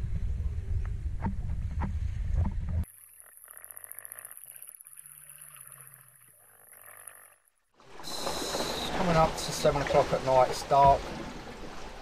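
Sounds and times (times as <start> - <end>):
faint high whine: 2.8 - 10.4
wind and sea rushing: 7.8 - 12.0
muffled underwater sound: 7.9 - 11.3.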